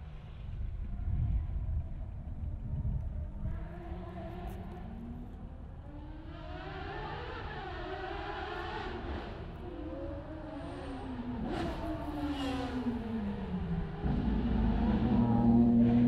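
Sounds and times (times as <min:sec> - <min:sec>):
race car engine: 0:03.2 - 0:16.0.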